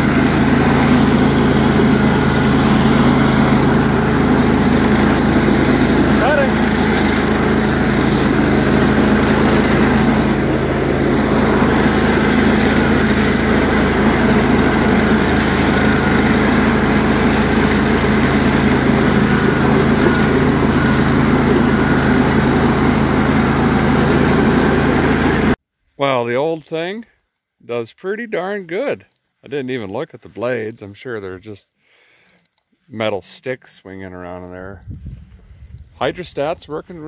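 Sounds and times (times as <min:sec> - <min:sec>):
lawn tractor engine running: 0:00.0 - 0:25.6.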